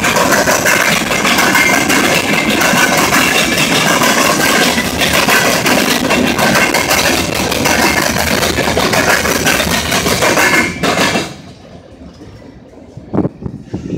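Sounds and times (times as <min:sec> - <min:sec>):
wheels clattering over crossing: 0:00.0 - 0:11.6
train wheels rumbling on rail: 0:00.0 - 0:13.9.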